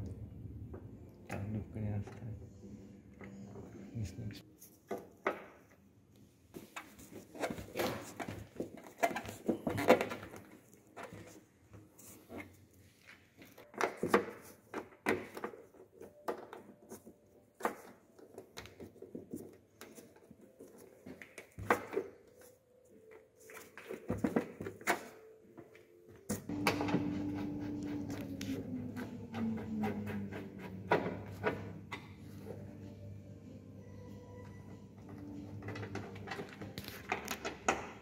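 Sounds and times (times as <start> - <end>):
steady hum with falling tone: 26.5 - 35.2.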